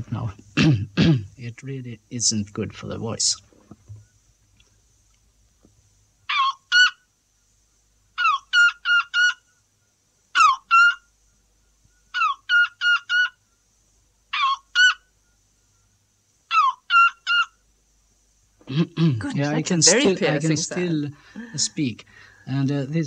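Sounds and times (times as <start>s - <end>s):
man imitating bird yelps: 6.3s - 7.0s, 8.2s - 9.4s, 10.3s - 11.0s, 12.1s - 13.4s, 14.3s - 15.0s, 16.5s - 17.6s.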